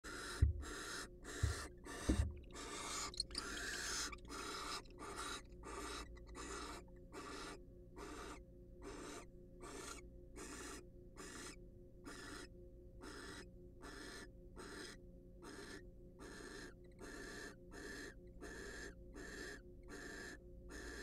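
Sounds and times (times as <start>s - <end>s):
owl hissing calls: 0.0s - 21.0s.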